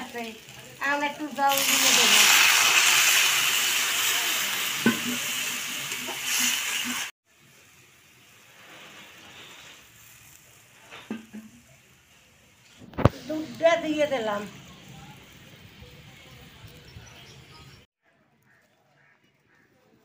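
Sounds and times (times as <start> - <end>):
vegetables sizzling in hot oil: 0.0 - 17.8.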